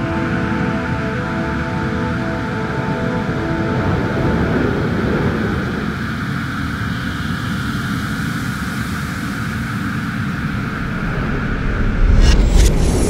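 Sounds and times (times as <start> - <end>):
spaceship engine rumble: 10.4 - 13.0.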